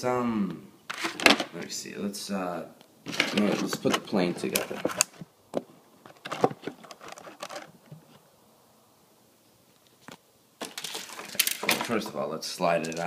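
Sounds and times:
plastic bag rustling: 10.6 - 13.0.

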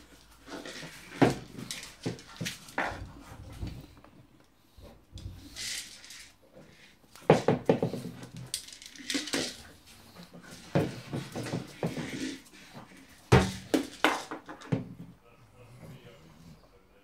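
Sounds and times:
plastic ball rattling on tile floor: 7.3 - 9.8, 13.4 - 14.8.

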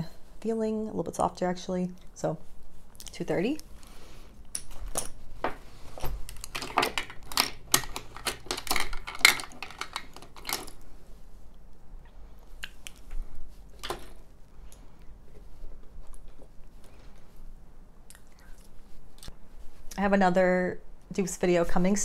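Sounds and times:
makeup brushes clattering: 6.1 - 10.8, 13.8 - 14.2.

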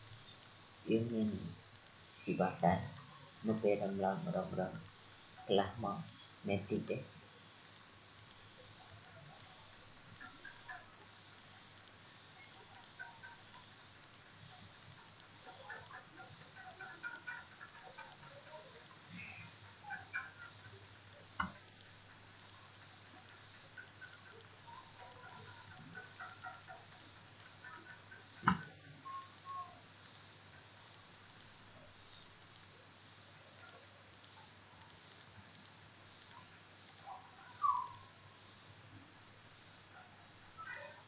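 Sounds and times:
computer mouse clicks: 0.0 - 2.0, 7.7 - 30.3, 30.9 - 32.7, 33.5 - 38.0
faint steady hum: 0.0 - 41.0.

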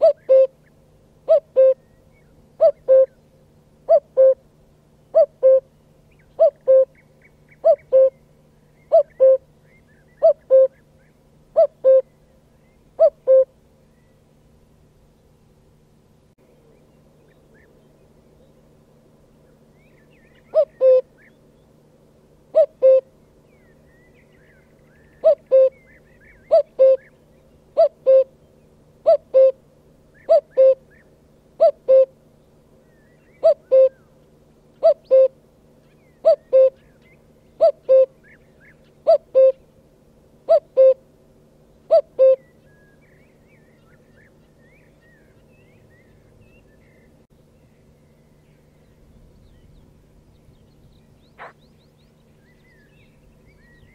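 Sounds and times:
cuckoo calling: 0.0 - 4.5, 5.1 - 14.2, 19.4 - 21.4, 22.5 - 39.7, 40.5 - 41.1, 41.8 - 47.2, 51.2 - 53.9.

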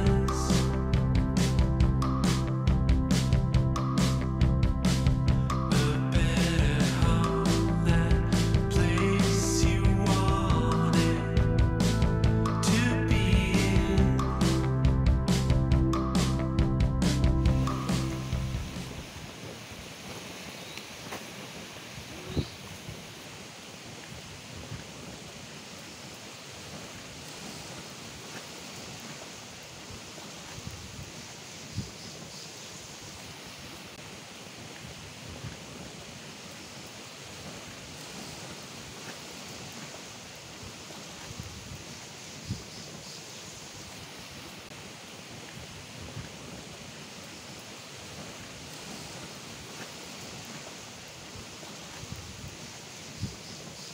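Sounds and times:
wind: 0.0 - 10.2, 10.9 - 53.9
gentle surf washing: 0.0 - 14.7, 15.3 - 53.9
wind thumps on microphone: 24.0 - 25.2.

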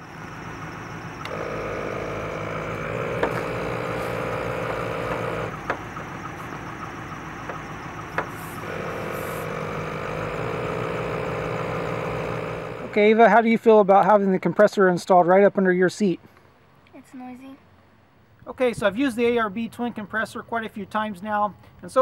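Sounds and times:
air compressor droning: 0.0 - 13.1.

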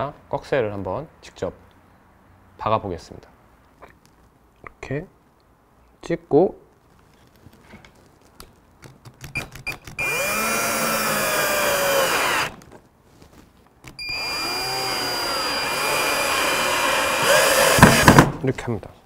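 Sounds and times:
drill clicks: 9.3 - 12.6, 13.9 - 18.3
drill motor whine: 10.0 - 12.6, 14.0 - 18.2
loud knocks: 17.2 - 18.4.

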